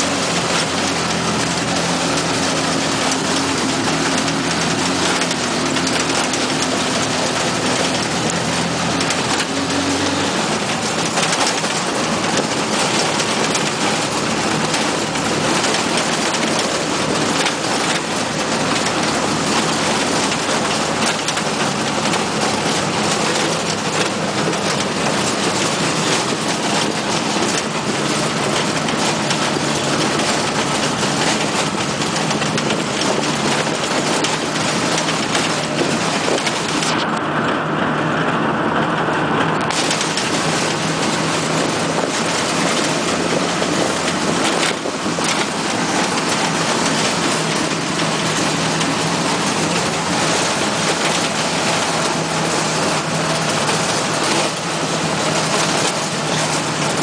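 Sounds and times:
small engine running: 0:00.0 - 0:37.4
wind and road noise: 0:00.0 - 0:57.0.

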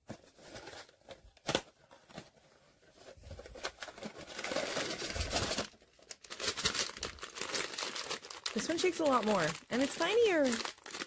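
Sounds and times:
wrapper crinkling and tearing: 0:03.3 - 0:11.0.

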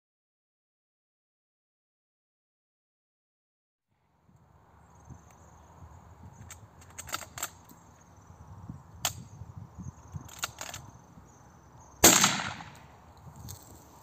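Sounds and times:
shotgun shot: 0:12.0 - 0:12.8.

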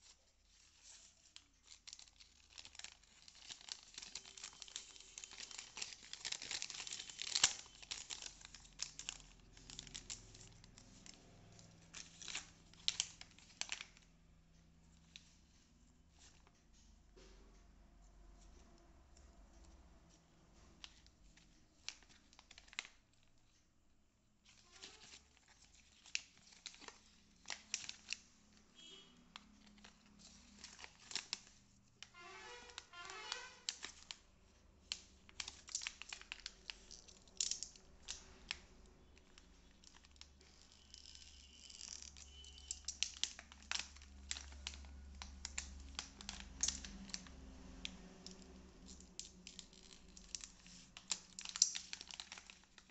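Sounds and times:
plastic tearing: 0:00.0 - 0:14.0, 0:24.4 - 0:34.2, 0:34.8 - 0:52.9
plastic packaging crinkling: 0:00.0 - 0:14.1, 0:20.8 - 0:23.6, 0:24.4 - 0:52.9.

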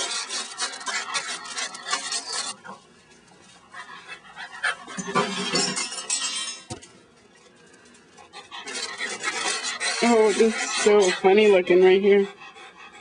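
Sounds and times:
dog panting: 0:00.0 - 0:02.8, 0:03.6 - 0:05.5, 0:08.2 - 0:13.0.

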